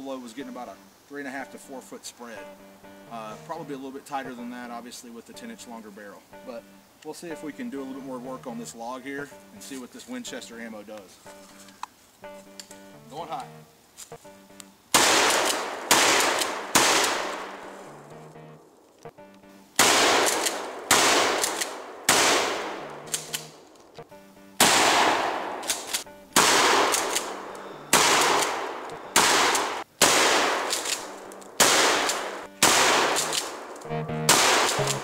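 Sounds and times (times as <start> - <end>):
shotgun blasts echoing: 15.0 - 17.6, 19.8 - 23.6, 24.6 - 35.0.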